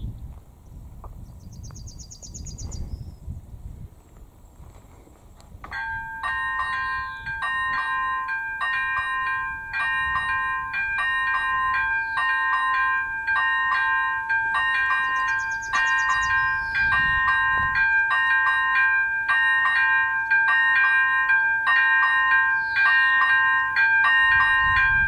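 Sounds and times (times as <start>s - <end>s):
level crossing bell dinging: 5.7s - 25.0s.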